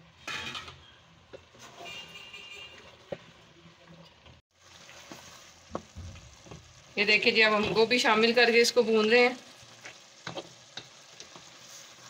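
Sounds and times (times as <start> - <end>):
wooden spoon stirring food in pot: 1.2 - 8.3, 9.0 - 12.0.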